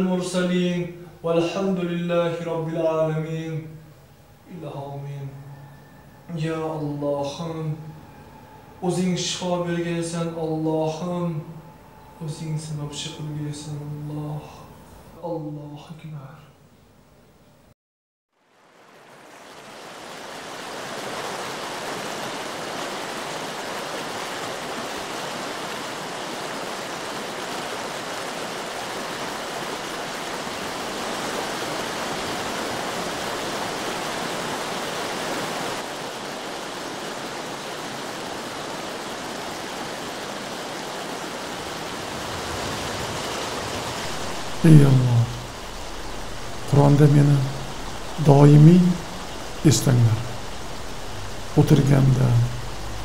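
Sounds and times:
stream rushing over rocks: 18.4s - 53.0s.

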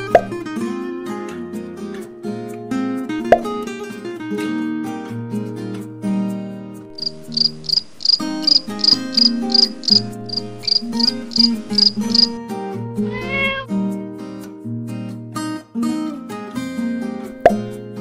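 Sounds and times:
acoustic guitar music: 0.0s - 18.0s
cricket chirping: 6.9s - 12.4s
cat meowing: 13.0s - 13.8s.

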